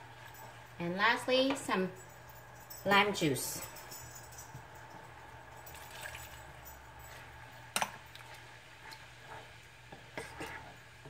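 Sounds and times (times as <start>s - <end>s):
wooden spoon stirring: 0.0s - 11.0s
sauce bubbling in saucepan: 5.7s - 11.0s.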